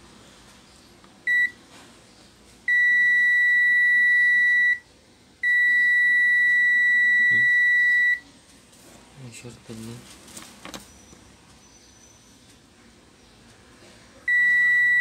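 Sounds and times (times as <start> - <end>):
multimeter continuity beeps: 1.3 - 1.6, 2.7 - 4.8, 5.4 - 8.2, 14.3 - 15.0.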